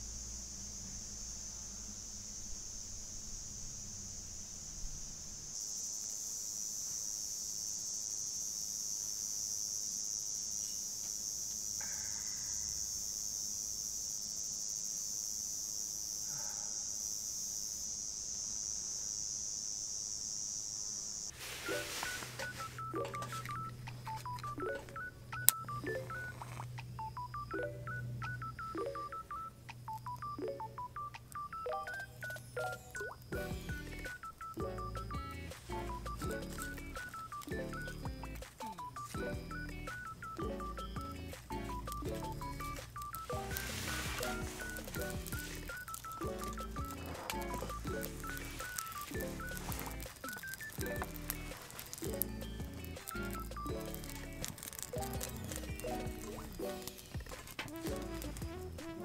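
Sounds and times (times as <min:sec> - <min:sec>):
low steady drone: 0:00.0 - 0:05.6
insect chorus: 0:00.0 - 0:30.4, 0:31.2 - 0:59.0
beeping electronic melody: 0:21.6 - 0:59.0.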